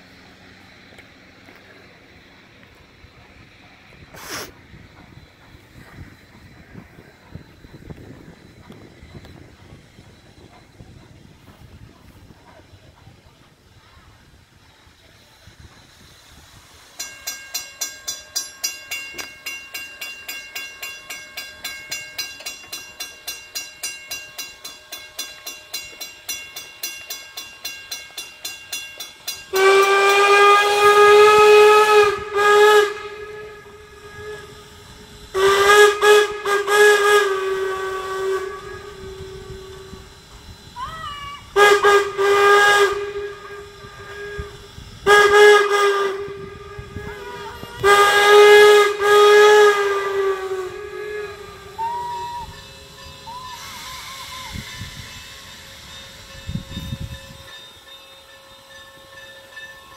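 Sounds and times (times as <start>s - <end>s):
railroad crossing bell ringing: 14.3s - 40.8s, 41.4s - 59.9s
steam locomotive whistle blasts: 27.4s - 59.9s.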